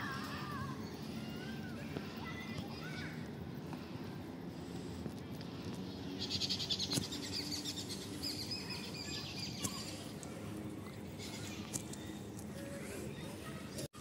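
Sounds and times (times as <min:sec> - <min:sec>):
low outdoor background noise: 0:00.0 - 0:14.0
birds chirping: 0:00.2 - 0:03.0, 0:05.6 - 0:13.9.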